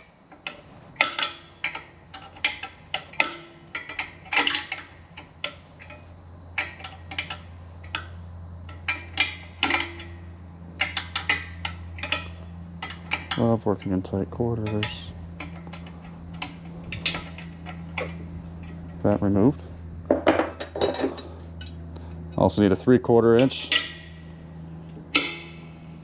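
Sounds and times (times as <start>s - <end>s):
wrench clinking on metal: 0.0s - 19.4s, 20.1s - 21.8s, 23.4s - 24.2s, 25.0s - 25.8s
low steady hum: 0.0s - 26.0s.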